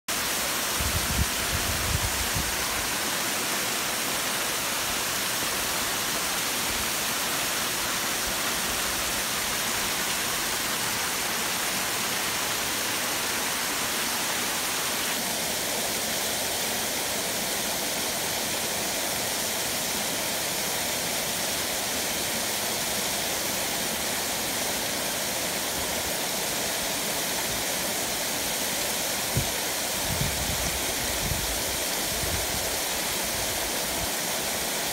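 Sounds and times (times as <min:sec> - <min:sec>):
waterfall splashing onto rocks: 0:00.1 - 0:34.9.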